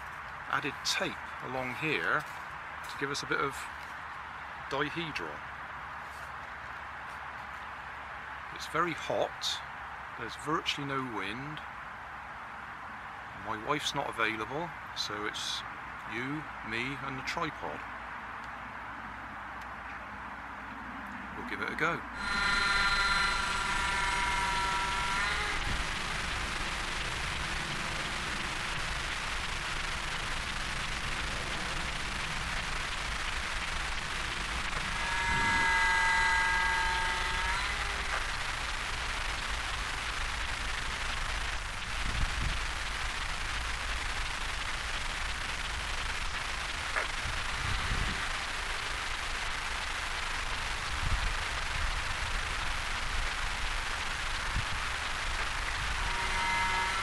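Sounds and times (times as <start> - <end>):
microphone hiss and rumble: 0.0 - 57.0
steady whining tone: 21.3 - 57.0.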